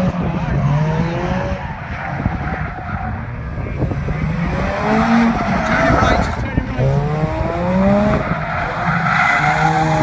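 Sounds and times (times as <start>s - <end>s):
wind buffeting microphone: 0.0s - 8.7s
tyres skidding on tarmac: 1.5s - 10.0s
car engine revving hard: 3.7s - 10.0s.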